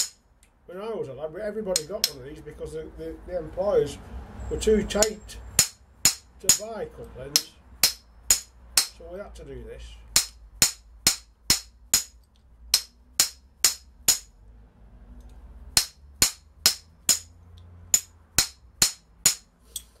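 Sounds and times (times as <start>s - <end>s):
hammer tapping on metal: 0.0s - 0.2s, 1.8s - 2.2s, 5.0s - 6.7s, 7.3s - 9.0s, 10.1s - 14.3s, 15.8s - 17.3s, 17.9s - 19.5s.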